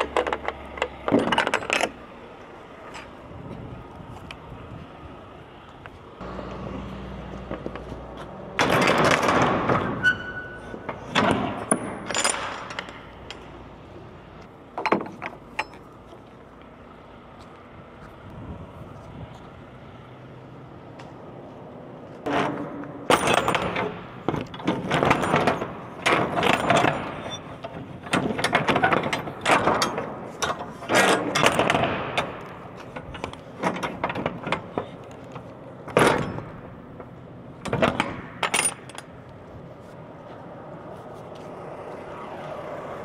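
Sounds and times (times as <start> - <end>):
metallic clanking and rattling: 0.0 - 2.0, 8.5 - 13.6, 22.2 - 39.2.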